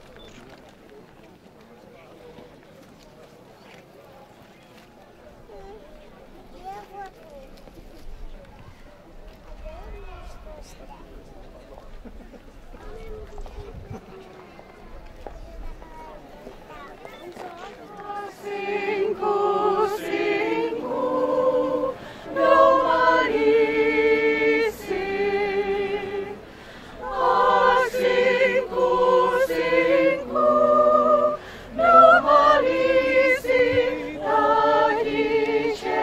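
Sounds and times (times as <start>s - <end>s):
choir singing in harmony: 17.9s - 36.0s.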